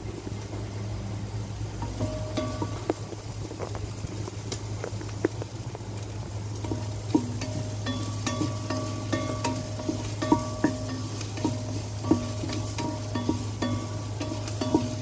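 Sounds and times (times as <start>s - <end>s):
onions sizzling in oil: 0.0s - 15.0s
steady low hum: 0.0s - 15.0s
wooden spoon knocking pot: 1.8s - 3.1s, 6.6s - 15.0s.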